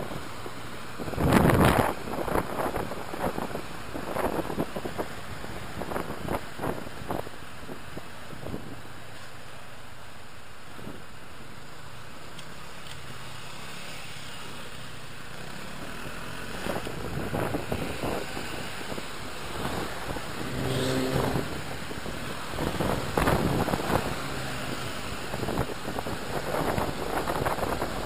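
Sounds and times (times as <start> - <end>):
wind buffeting microphone: 0.0 - 8.9, 16.6 - 28.0
traffic noise rushing: 0.0 - 28.0
brief low-pitched sound: 20.4 - 21.8.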